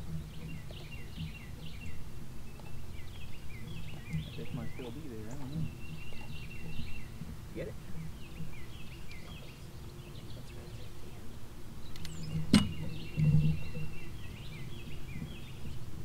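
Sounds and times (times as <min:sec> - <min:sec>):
birds chirping: 0:00.0 - 0:16.0
sharp click: 0:11.9 - 0:12.8.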